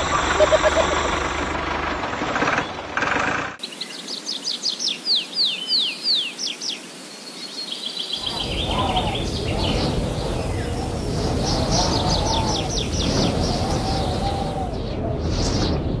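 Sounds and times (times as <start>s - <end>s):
mechanical running noise: 0.0s - 3.6s
bird trill: 7.7s - 14.8s
bird whistling downward notes: 8.1s - 16.0s.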